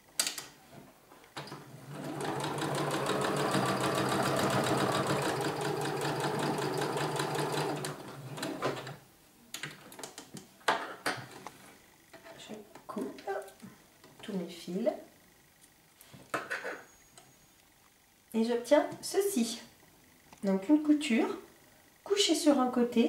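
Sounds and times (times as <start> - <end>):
electric sewing machine stitching: 1.4 - 9.0.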